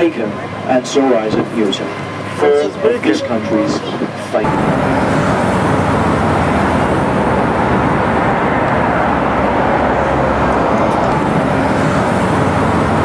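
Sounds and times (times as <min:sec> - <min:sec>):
boat engine drone: 0:00.0 - 0:13.0
rushing air and water: 0:03.9 - 0:13.0.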